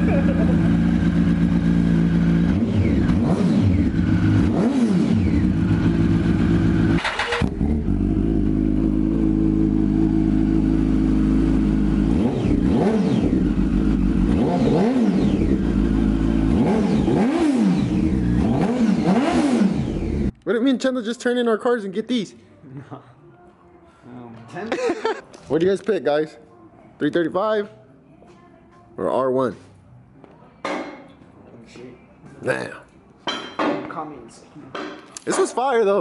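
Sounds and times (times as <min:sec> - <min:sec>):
motorcycle engine idling and revving: 0:00.0 - 0:20.4.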